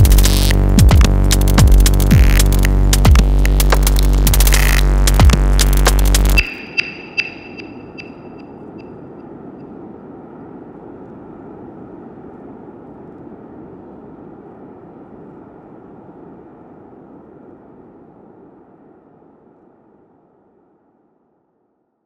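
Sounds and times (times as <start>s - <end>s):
electronic drone: 0.0s - 9.7s.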